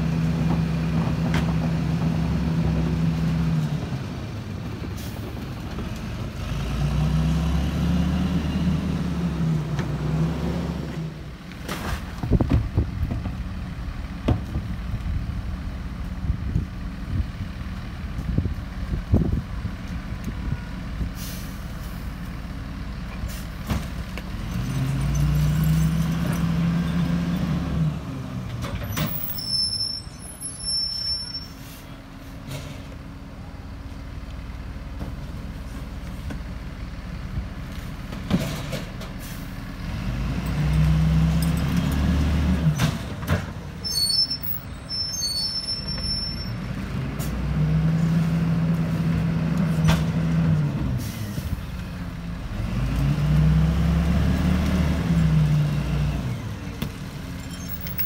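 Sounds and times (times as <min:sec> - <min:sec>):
diesel truck engine revving: 0:00.0 - 0:11.4, 0:24.2 - 0:29.6, 0:39.2 - 0:58.0.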